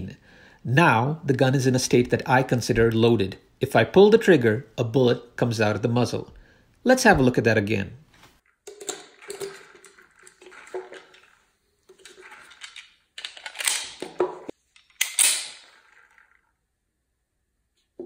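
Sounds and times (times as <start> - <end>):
pistol being loaded: 14.8 - 15.6.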